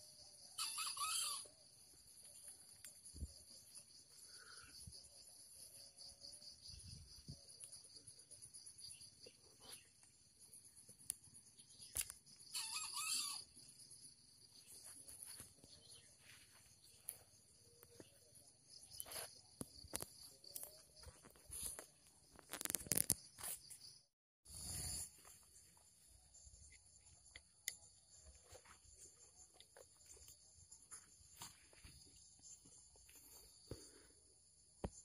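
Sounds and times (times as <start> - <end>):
insects droning: 0.0 - 35.0
junglefowl crowing: 0.5 - 1.6, 12.5 - 13.6.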